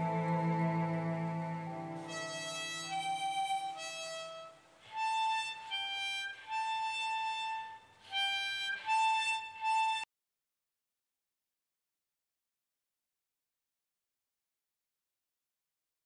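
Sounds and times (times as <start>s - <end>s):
harmonica slow melody: 0.0s - 10.1s.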